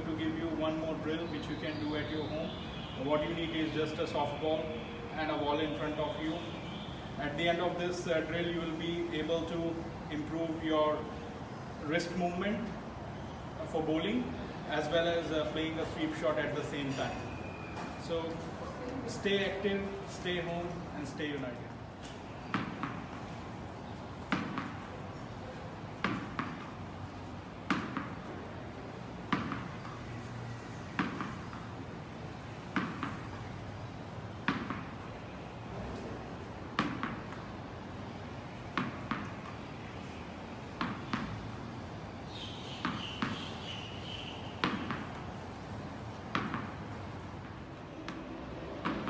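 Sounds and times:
tennis ball bouncing off wall: 22.0s - 25.0s, 26.0s - 26.8s, 27.6s - 28.4s, 29.2s - 30.2s, 30.9s - 31.8s, 32.6s - 33.5s, 34.4s - 35.0s, 36.7s - 37.5s, 38.7s - 39.8s, 40.7s - 41.5s, 42.8s - 43.7s, 44.5s - 45.4s, 46.2s - 49.0s.

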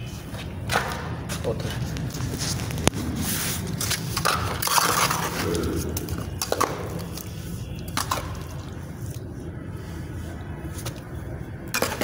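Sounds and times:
gritty scraping and crunching: 1.3s - 9.4s.

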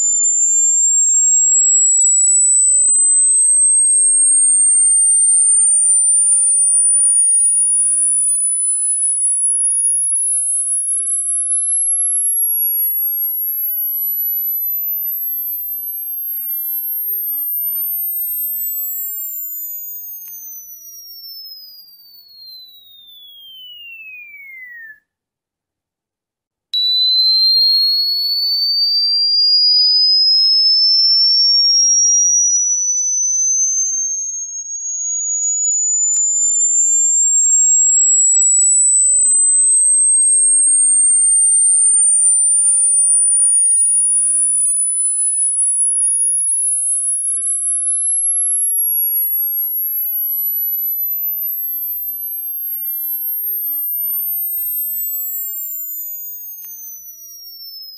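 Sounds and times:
falling whistle: 0.0s - 25.2s, 26.8s - 57.9s
faint gliding tone: 26.8s - 43.6s.

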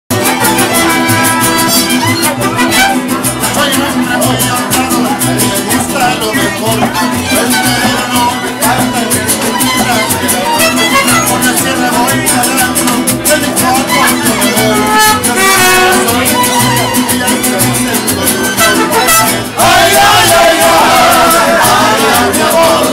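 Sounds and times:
deep plucked bass: 0.1s - 22.9s
strummed guitar: 0.1s - 22.9s
violins playing melody: 0.2s - 3.2s.

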